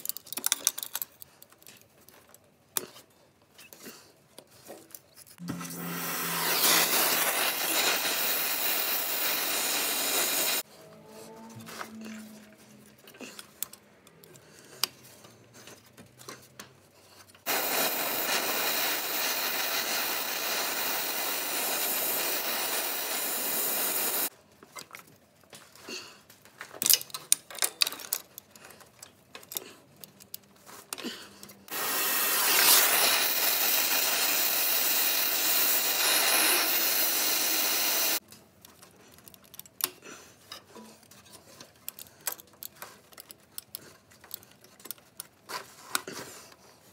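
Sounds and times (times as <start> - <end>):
metal clicks and knocks from tools: 0.0 - 3.1, 26.4 - 31.6, 38.3 - 46.6
long steady hisses: 5.8 - 10.6, 17.5 - 24.3, 31.7 - 38.2.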